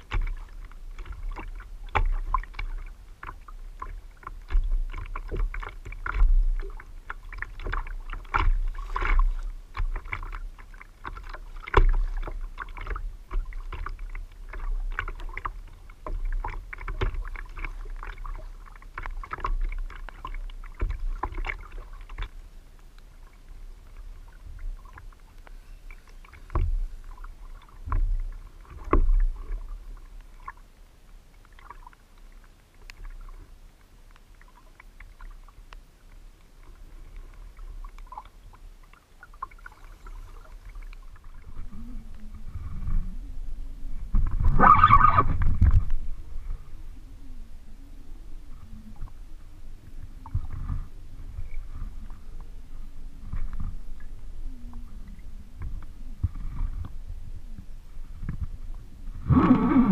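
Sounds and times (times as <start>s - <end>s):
water slapping kayak hull: 0.0s - 59.9s
low rumble: 40.1s - 59.9s.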